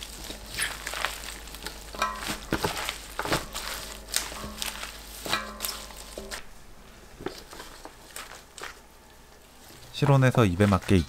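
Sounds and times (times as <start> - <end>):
wet squelches of tossed greens: 0.0 - 6.5.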